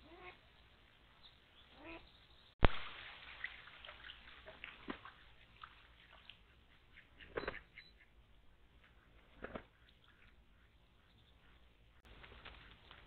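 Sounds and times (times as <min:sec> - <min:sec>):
duck splashing in water: 0:02.6 - 0:07.8.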